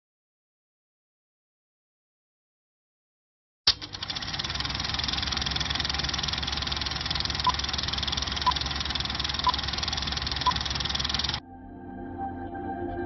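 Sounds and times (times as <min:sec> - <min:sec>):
film projector clattering: 0:03.7 - 0:11.4.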